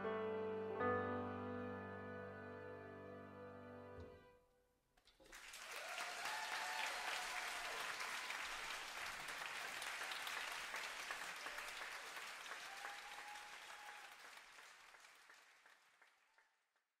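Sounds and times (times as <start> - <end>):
audience applauding: 5.0 - 16.8.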